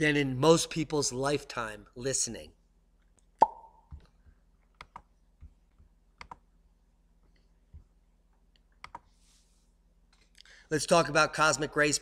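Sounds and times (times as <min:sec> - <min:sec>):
computer mouse clicks: 0:04.7 - 0:05.1, 0:06.2 - 0:06.4, 0:08.5 - 0:09.2.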